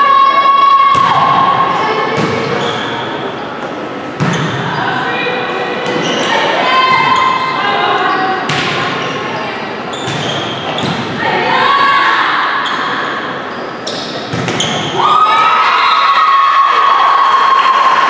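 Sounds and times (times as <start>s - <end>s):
shouting and cheering: 0.0s - 2.2s, 6.3s - 8.1s, 11.2s - 13.2s, 14.8s - 18.0s
players shouting calls: 10.3s - 13.4s.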